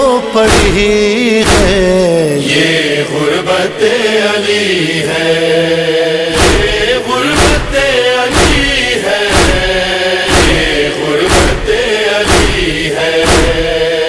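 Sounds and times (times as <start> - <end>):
low thumps: 0.5 - 2.0, 6.3 - 14.0
voices chanting: 1.4 - 14.0.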